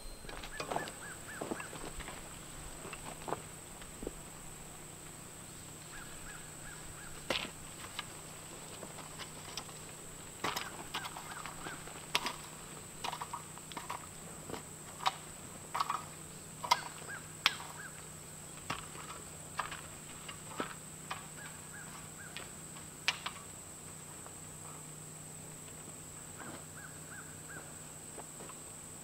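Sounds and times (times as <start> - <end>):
bird calling: 0.0 - 3.3, 5.3 - 14.3, 15.8 - 19.4, 21.1 - 22.5, 26.1 - 27.9
rake scraping dirt and gravel: 0.0 - 6.1, 6.8 - 17.8, 18.5 - 24.4.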